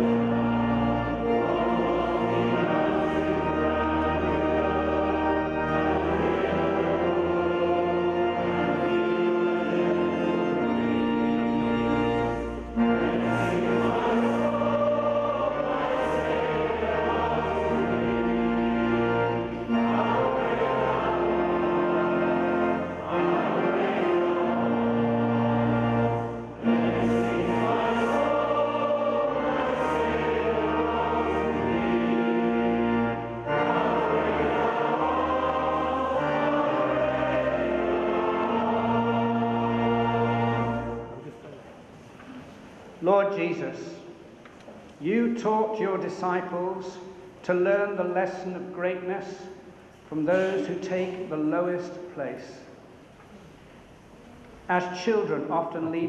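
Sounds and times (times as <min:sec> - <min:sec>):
congregation and choir singing hymn: 0:00.0 - 0:41.4, 0:45.0 - 0:53.1
organ: 0:00.0 - 0:41.4.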